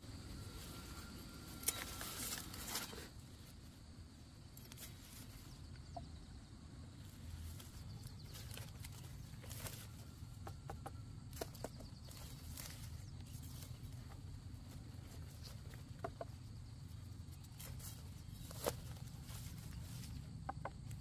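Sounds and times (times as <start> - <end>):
chickens clucking: 7.6 - 17.0, 19.7 - 21.0.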